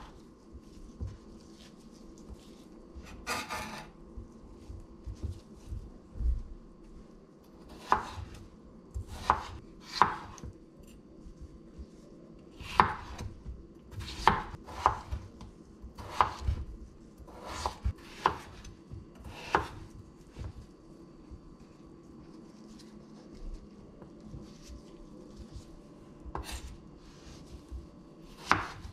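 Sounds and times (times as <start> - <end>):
knife chopping on wooden board: 7.7 - 8.4, 9.0 - 10.6, 12.6 - 15.3, 16.0 - 16.7, 17.3 - 20.6, 28.4 - 28.9.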